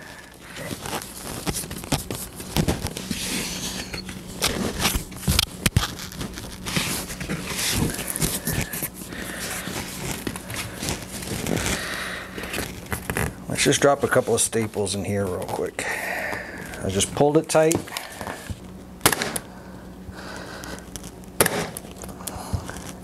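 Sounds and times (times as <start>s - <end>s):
seat cover rustling and scraping: 0.0s - 11.9s.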